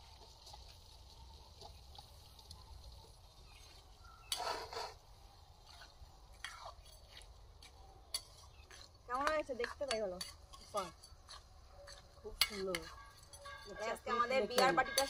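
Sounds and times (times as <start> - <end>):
metal spoon scraping a pan: 3.6 - 15.0.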